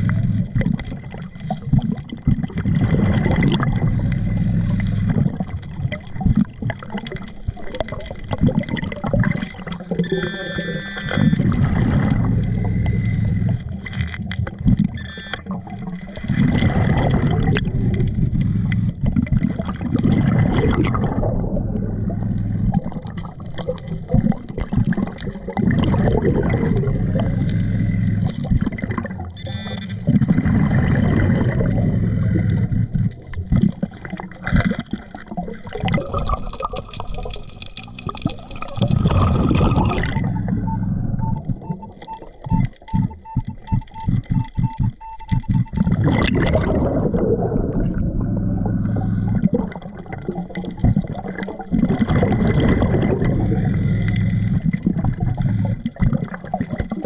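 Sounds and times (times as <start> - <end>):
exhaled bubbles gurgling: 0.0 - 57.0
diver breathing through regulator: 31.6 - 33.2.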